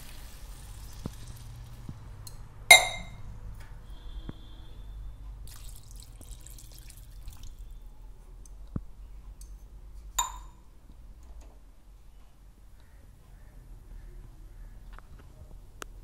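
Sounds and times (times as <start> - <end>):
curry bubbling in a pan: 0.0 - 2.2
utensil clinking against pan: 2.7 - 3.2, 10.2 - 10.6.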